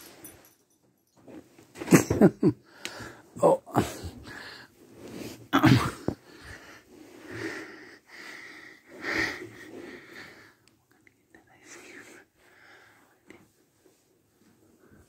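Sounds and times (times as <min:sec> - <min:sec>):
person sneezing: 0:05.6 - 0:06.2.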